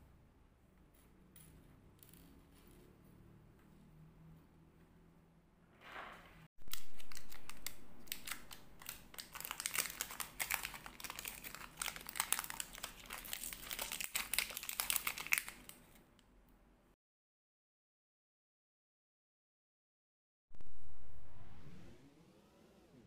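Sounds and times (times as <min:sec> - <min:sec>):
plastic bag crinkling: 0:06.6 - 0:16.0.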